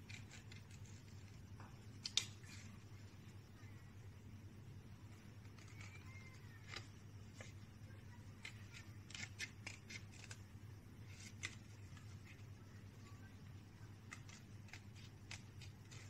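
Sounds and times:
scissors snipping paper: 0:00.0 - 0:01.4, 0:05.4 - 0:13.1, 0:13.8 - 0:16.0
low steady hum: 0:00.0 - 0:16.0.

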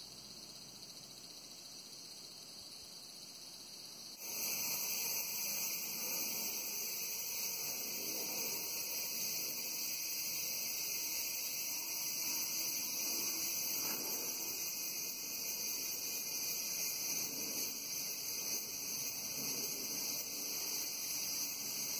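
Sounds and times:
cicadas buzzing: 0:00.0 - 0:21.9.

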